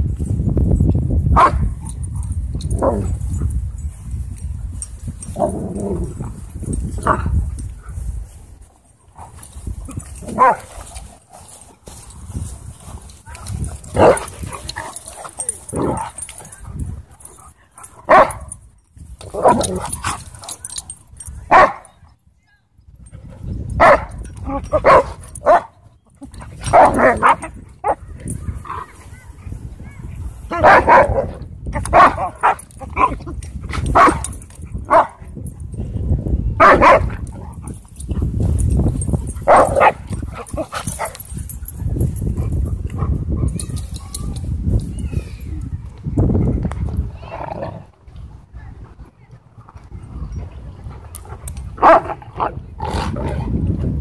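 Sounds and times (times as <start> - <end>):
dogs barking: 1.4 - 3.4, 10.2 - 10.7, 13.8 - 16.4, 17.8 - 18.6, 21.5 - 21.9, 23.8 - 25.8, 26.6 - 28.0, 30.5 - 33.2, 33.9 - 35.2, 36.6 - 37.7, 39.3 - 41.3, 51.8 - 52.5.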